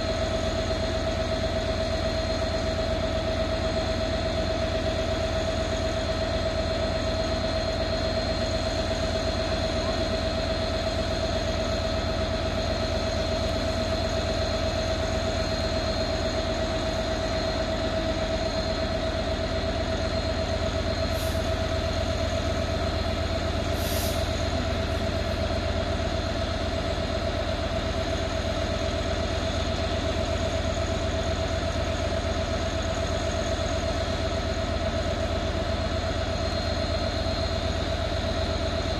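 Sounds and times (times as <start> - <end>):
locomotive engine idling: 0.0 - 38.9
short hisses: 23.8 - 24.2.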